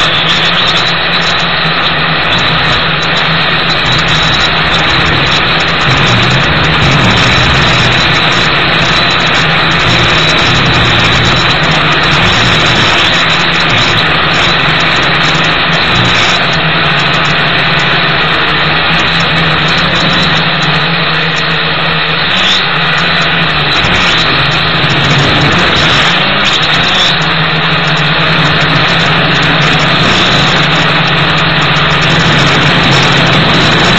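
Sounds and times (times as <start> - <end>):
quadcopter motors buzzing: 0.0 - 33.9.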